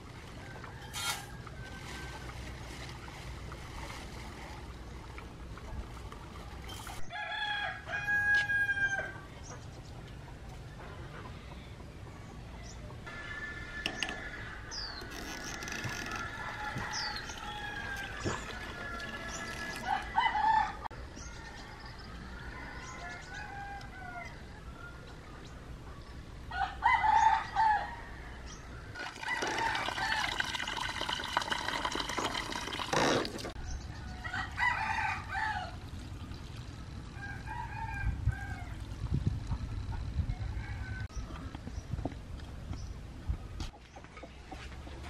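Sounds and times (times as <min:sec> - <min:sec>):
rooster crowing: 0:07.1 - 0:09.2, 0:13.1 - 0:25.0, 0:26.5 - 0:28.4, 0:34.0 - 0:35.8, 0:37.2 - 0:38.8, 0:40.3 - 0:41.1.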